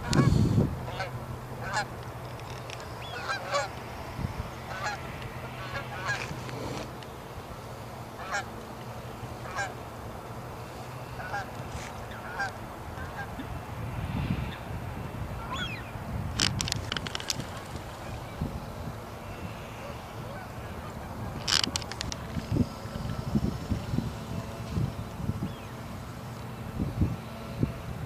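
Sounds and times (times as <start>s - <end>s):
geese honking: 0.0s - 6.9s, 7.7s - 13.5s, 15.4s - 15.9s, 18.0s - 23.4s.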